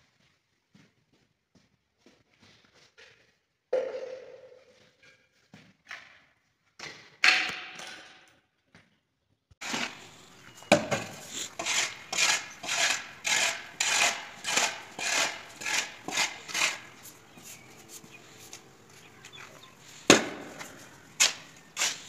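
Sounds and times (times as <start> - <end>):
shovel scraping cement mix: 9.6 - 22.0.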